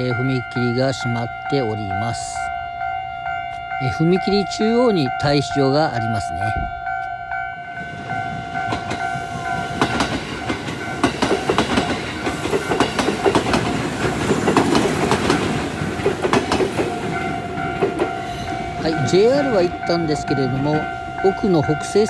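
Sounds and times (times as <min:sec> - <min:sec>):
level-crossing alarm tones: 0:00.0 - 0:13.1, 0:15.6 - 0:22.0
train wheels clacking over rail joints: 0:08.7 - 0:19.5.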